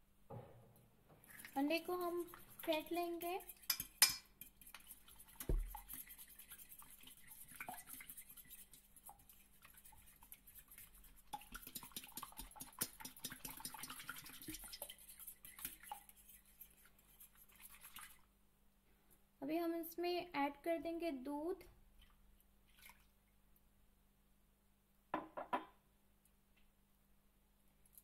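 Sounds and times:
dull knock: 0:05.5 - 0:05.7.

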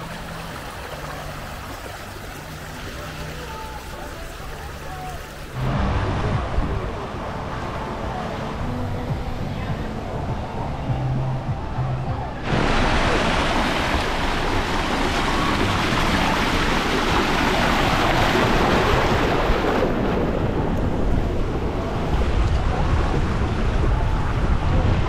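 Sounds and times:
water rushing and splashing: 0:00.0 - 0:25.0
wind buffeting the microphone: 0:08.9 - 0:25.0.

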